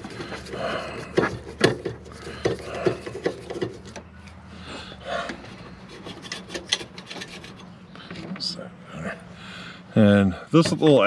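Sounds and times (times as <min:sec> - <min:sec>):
screwdriver scraping on sheet metal: 0:05.3 - 0:07.7.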